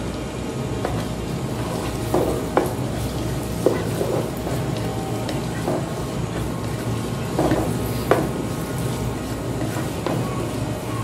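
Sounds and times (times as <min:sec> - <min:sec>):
spatula knocking against pot: 0:00.8 - 0:08.6
onions sizzling in oil: 0:00.8 - 0:11.0.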